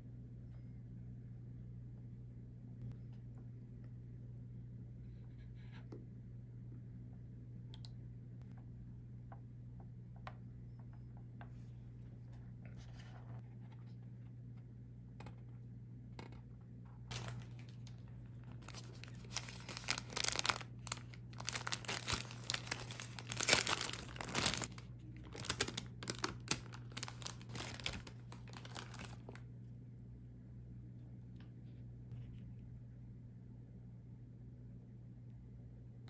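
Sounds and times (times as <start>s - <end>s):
paper wrapper crinkling: 17.1s - 29.4s.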